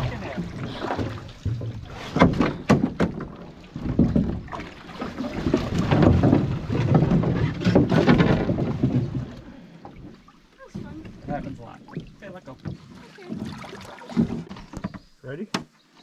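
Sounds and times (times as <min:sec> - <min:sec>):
gear knocking against canoe hull: 0:00.0 - 0:10.0
water sloshing and splashing: 0:00.0 - 0:16.0.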